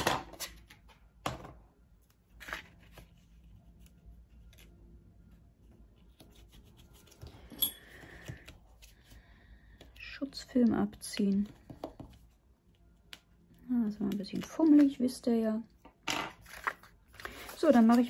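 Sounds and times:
fiddling with tape and paper: 16.3 - 18.0.

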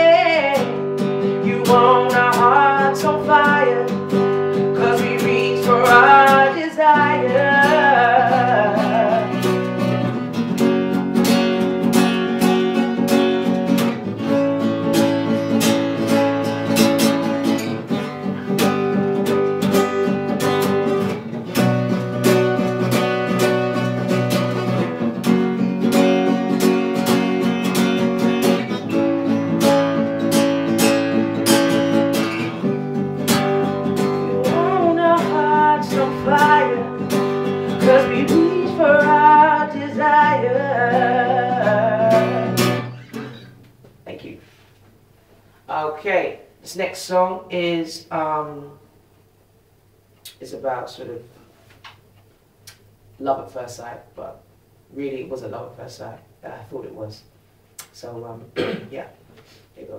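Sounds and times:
acoustic guitar strumming: 0.0 - 44.2
wordless vocal line: 34.3 - 37.0, 37.6 - 42.7.

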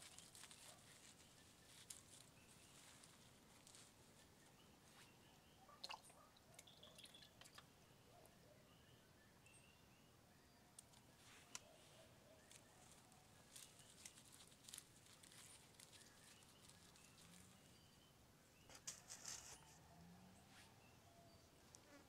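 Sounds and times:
hands scratching potting mix: 0.0 - 4.4, 12.4 - 17.7, 18.7 - 19.8
faint high chirps: 0.1 - 14.8, 15.4 - 21.9.

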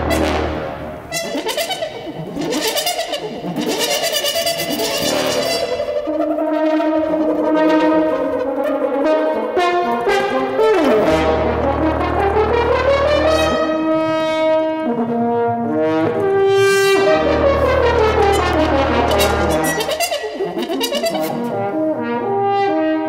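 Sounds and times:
french horn held notes: 0.0 - 5.8, 6.4 - 22.8
second brass instrument: 0.0 - 23.0
low electronic drone: 16.2 - 21.6.

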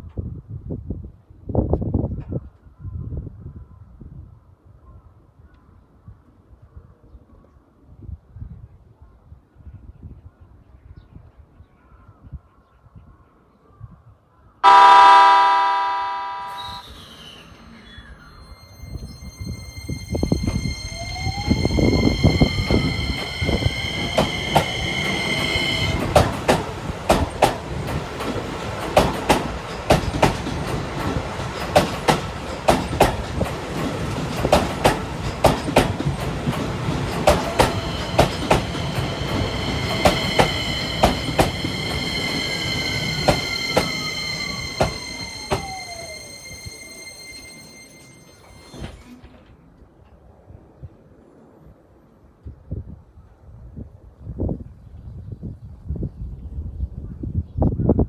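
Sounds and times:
train motor whine: 14.7 - 26.3, 37.3 - 49.6.

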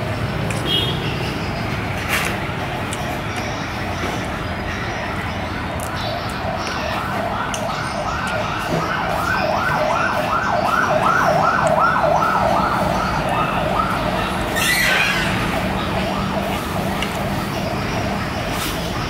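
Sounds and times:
siren sweeping up and down: 5.9 - 19.0.

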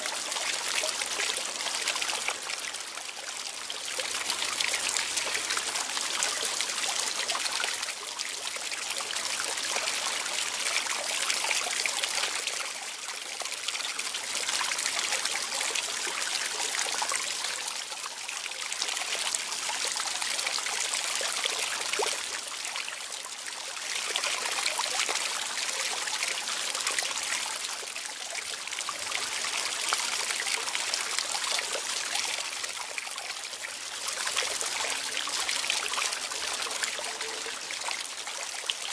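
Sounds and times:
water trickling and splashing: 0.0 - 38.9.

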